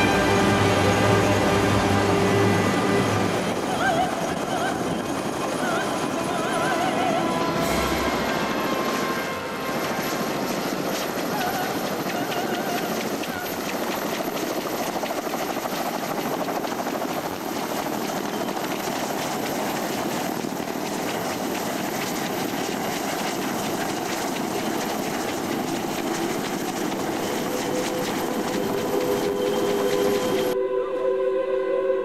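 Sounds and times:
music: 0:00.0 - 0:04.4, 0:05.2 - 0:10.5, 0:25.6 - 0:32.0
helicopter rotor chop: 0:00.0 - 0:30.6.

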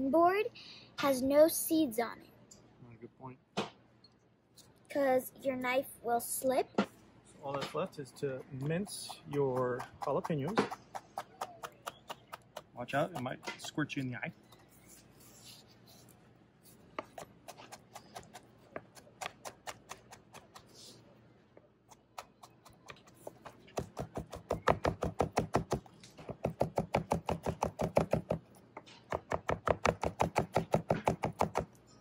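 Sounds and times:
knife chopping on cutting board: 0:09.0 - 0:13.8, 0:22.1 - 0:28.4, 0:29.1 - 0:31.7.

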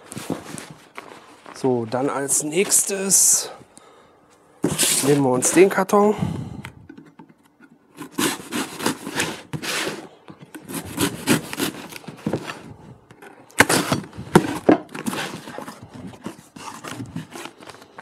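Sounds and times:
cardboard rustling: 0:00.0 - 0:03.0, 0:06.9 - 0:18.0
knife slitting packing tape: 0:08.0 - 0:10.0, 0:10.6 - 0:12.5, 0:13.5 - 0:15.8.

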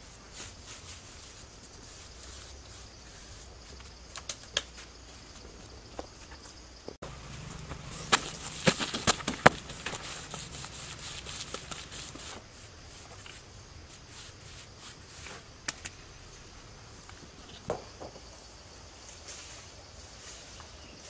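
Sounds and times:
mortar scraping: 0:07.0 - 0:15.5.

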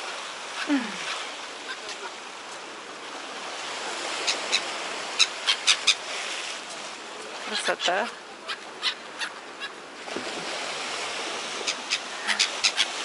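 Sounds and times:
surf washing on shore: 0:00.0 - 0:13.0
seagull calls: 0:07.5 - 0:09.8, 0:11.6 - 0:13.0.

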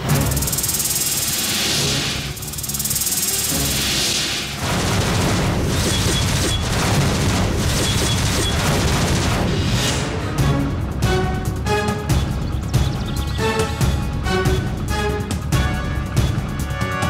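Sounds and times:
dramatic film score: 0:00.0 - 0:17.0.

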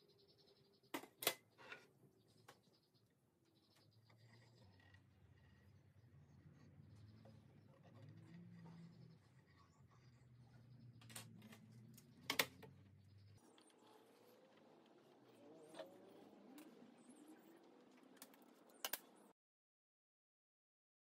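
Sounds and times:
pencil scratching on wood: 0:03.7 - 0:12.2.

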